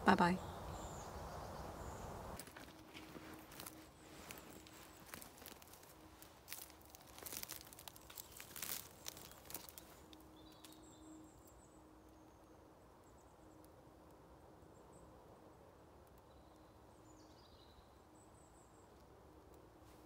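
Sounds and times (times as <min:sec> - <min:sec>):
coat fabric rustling: 0:02.4 - 0:10.0
footsteps crunching on dry leaves: 0:02.4 - 0:10.8.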